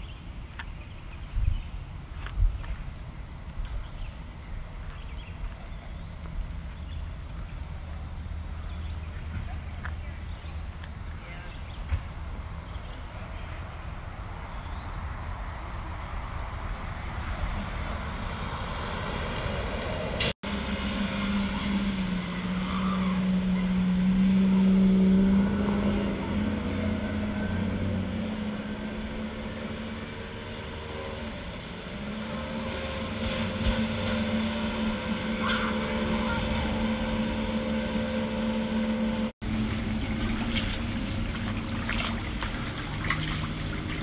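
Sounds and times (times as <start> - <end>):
vehicle engine running: 15.8 - 44.0.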